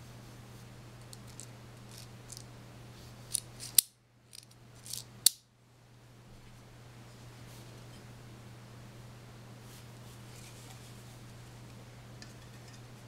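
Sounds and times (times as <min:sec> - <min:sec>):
pistol parts clicking: 0:03.3 - 0:05.4.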